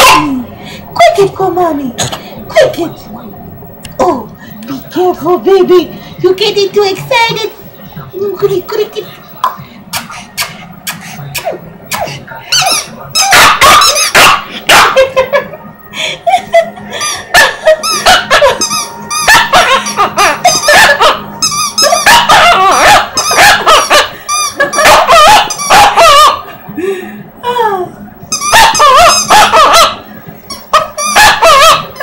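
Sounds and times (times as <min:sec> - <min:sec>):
rubber squeaky toy squeaking: 0:12.5 - 0:14.2, 0:17.8 - 0:23.6, 0:28.3 - 0:29.4.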